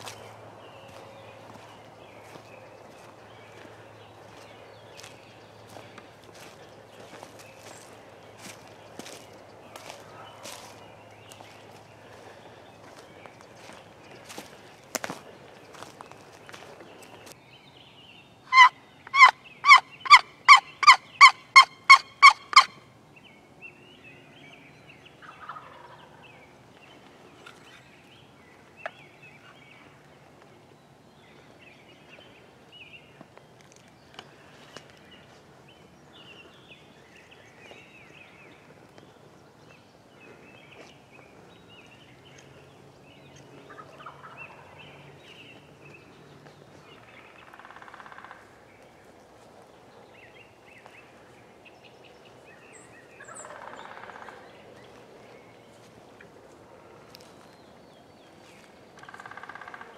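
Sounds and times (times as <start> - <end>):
turkey yelping: 18.5 - 22.7.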